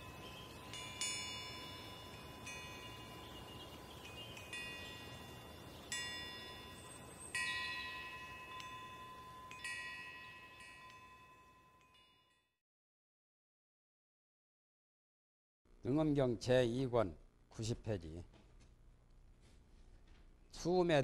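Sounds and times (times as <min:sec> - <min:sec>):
faint steady tone: 0:00.0 - 0:12.5
wind chimes ringing: 0:00.0 - 0:12.6.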